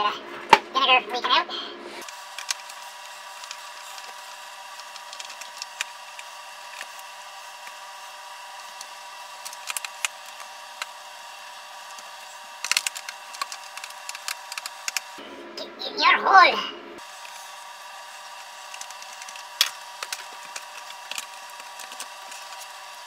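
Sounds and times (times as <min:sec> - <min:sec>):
screwdriver clicks and creaks: 0:02.0 - 0:07.8, 0:11.9 - 0:15.2, 0:18.7 - 0:22.8.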